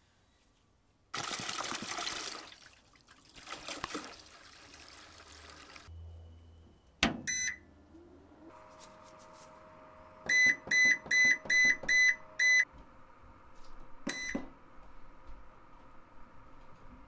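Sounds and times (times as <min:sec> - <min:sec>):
liquid pouring and splashing: 0:01.1 - 0:05.9
short electronic beep: 0:05.9 - 0:07.6.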